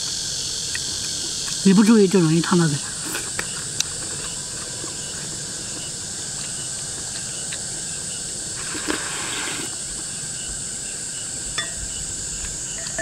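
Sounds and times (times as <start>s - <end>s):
insect chorus chirring: 0.0s - 13.0s
person slurping soup: 8.6s - 9.8s.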